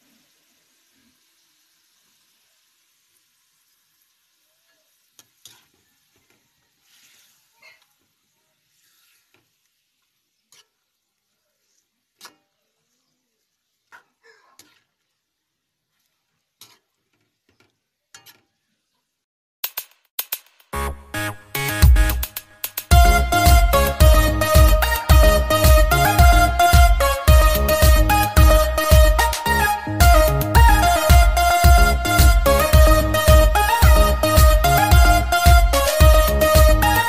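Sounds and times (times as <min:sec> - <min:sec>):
faint frying sizzle: 0:00.0 - 0:19.2
metal spatula scraping a wok: 0:05.4 - 0:05.8, 0:06.8 - 0:07.6, 0:08.7 - 0:09.6, 0:10.3 - 0:12.6, 0:16.0 - 0:18.6
loud music: 0:20.8 - 0:37.0.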